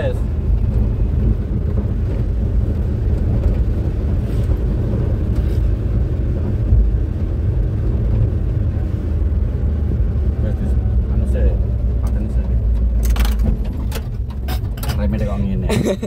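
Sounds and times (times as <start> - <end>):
vehicle engine and road rumble: 0.0 - 16.0.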